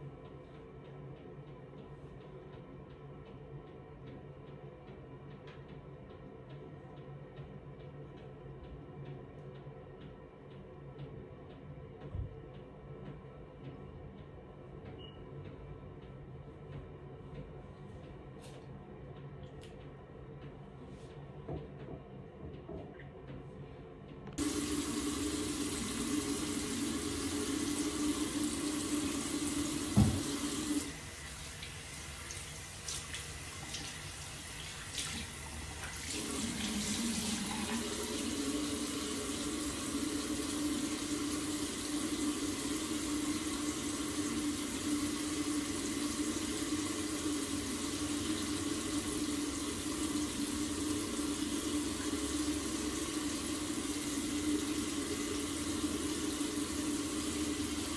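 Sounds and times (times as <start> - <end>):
tap running into sink: 24.4 - 30.9.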